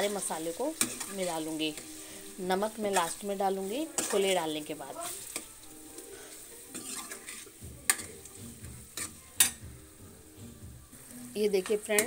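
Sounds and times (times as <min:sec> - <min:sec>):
food sizzling in oil: 0:00.0 - 0:12.0
metal spoon clinking pan: 0:00.8 - 0:01.8, 0:04.0 - 0:04.4, 0:06.7 - 0:08.2, 0:09.0 - 0:09.6.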